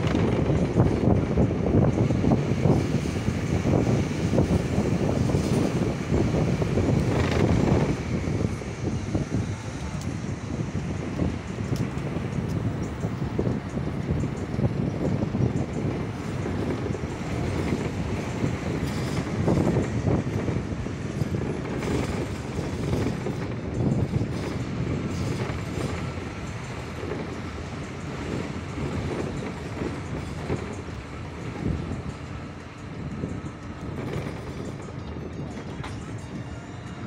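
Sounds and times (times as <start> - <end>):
vehicle engine and tyre rumble: 0.0 - 37.0.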